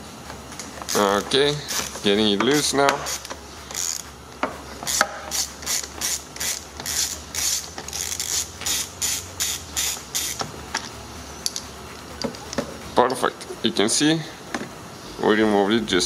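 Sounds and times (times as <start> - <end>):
hand ratchet clicking: 0.8 - 4.1, 4.8 - 11.6.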